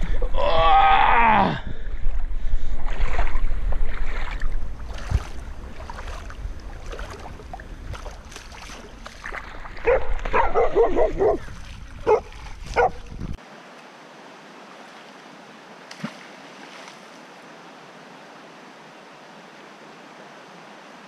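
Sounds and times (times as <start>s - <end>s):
feet splashing through water: 1.7s - 13.4s, 15.8s - 17.3s
dog barking: 9.8s - 11.4s, 12.0s - 13.0s.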